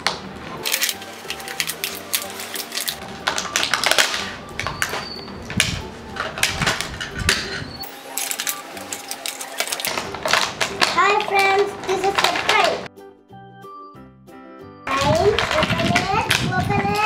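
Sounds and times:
plastic toy pieces knocking: 0.0 - 7.6, 8.2 - 12.9, 14.9 - 17.0
plastic packaging crackling: 0.6 - 7.0, 7.9 - 12.9, 14.9 - 16.5.

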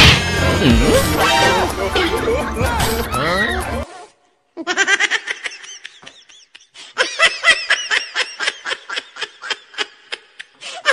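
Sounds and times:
high-pitched laughter: 4.6 - 10.9.

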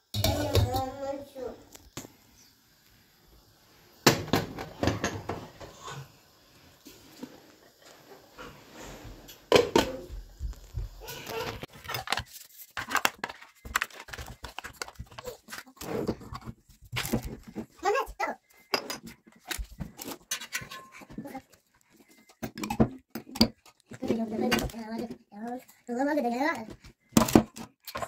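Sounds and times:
plastic crinkling: 11.2 - 15.9.

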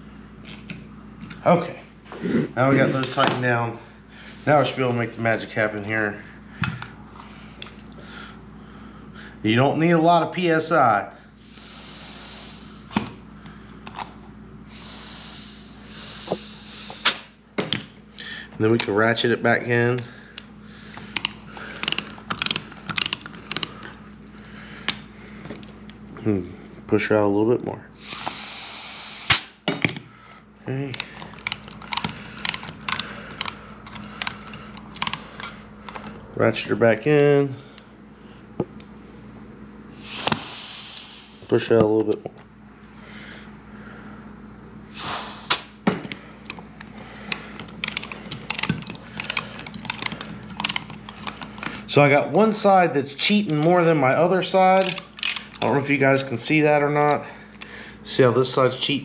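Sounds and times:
blast of compressed air: 14.7 - 17.4, 28.0 - 29.6, 40.0 - 41.5, 44.9 - 45.8
hand ratchet clicking: 21.1 - 23.7, 46.5 - 51.7.

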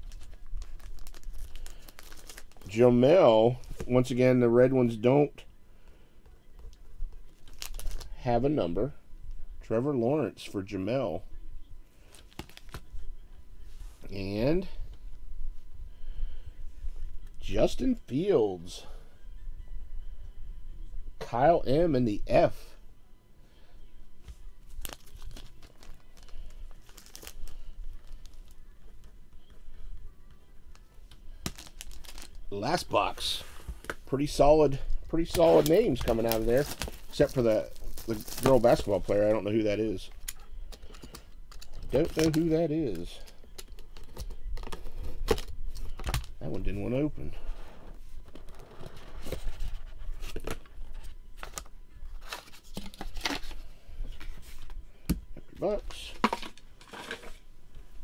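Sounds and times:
plastic sleeve crinkling: 0.0 - 2.9, 7.2 - 8.2, 24.6 - 28.6, 31.4 - 46.7.

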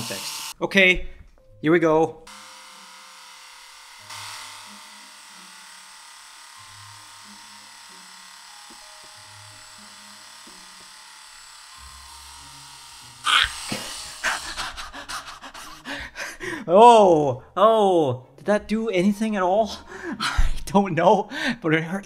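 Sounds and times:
epilator whirring: 2.3 - 16.5
person crying in pain: 13.2 - 17.2.

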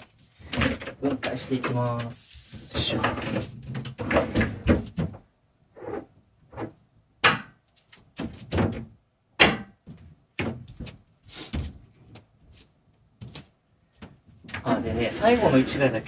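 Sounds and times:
wooden knocks and thuds: 2.8 - 5.3, 8.2 - 12.3.

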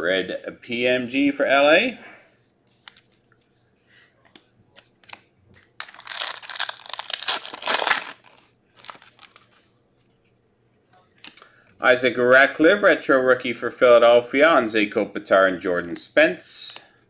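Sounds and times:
foil wrapper tearing and crinkling: 5.8 - 9.4.

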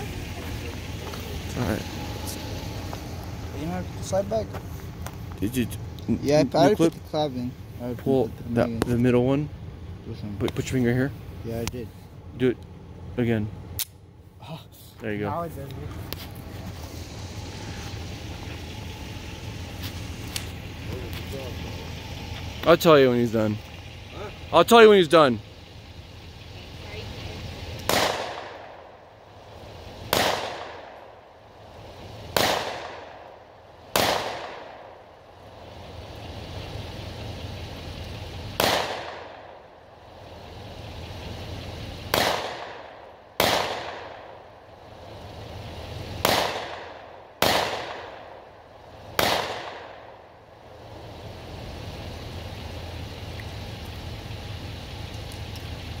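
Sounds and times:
pistol shots with echo: 27.9 - 28.8, 30.1 - 31.0, 32.4 - 33.2, 33.9 - 34.9, 38.6 - 39.5, 42.1 - 44.3, 46.2 - 48.3, 49.2 - 50.1.

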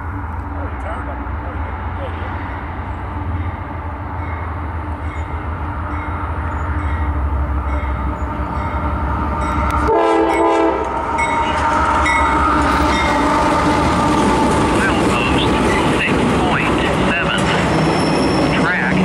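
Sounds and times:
diesel locomotive engine rumble: 0.0 - 19.0
locomotive air horn chord: 9.7 - 11.4.

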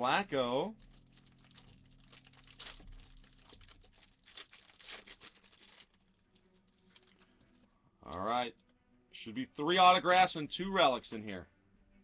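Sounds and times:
cellophane wrapper crinkling and tearing: 0.0 - 7.7.

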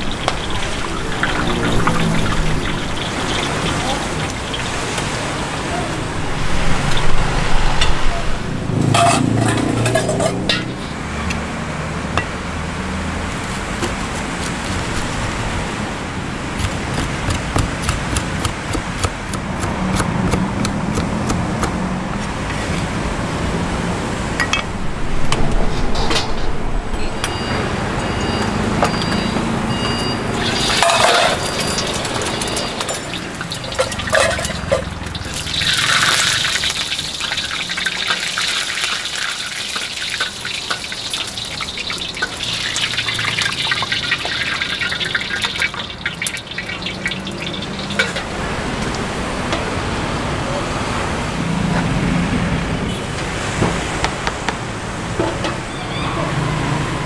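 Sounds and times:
voices: 0.0 - 6.3, 26.8 - 35.0, 55.3 - 57.0
traffic: 0.0 - 57.0.

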